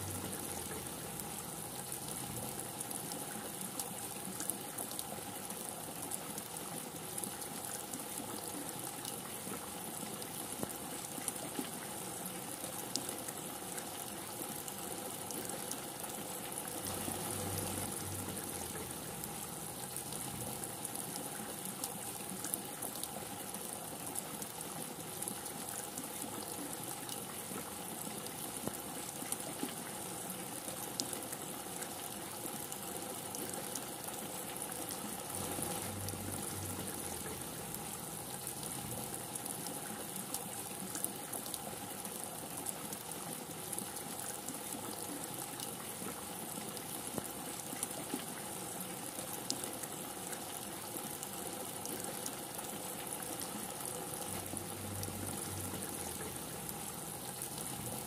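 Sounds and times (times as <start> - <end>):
heavy rain: 0.0 - 7.8, 14.8 - 25.8, 31.0 - 58.0
drips and splashes: 0.0 - 58.0.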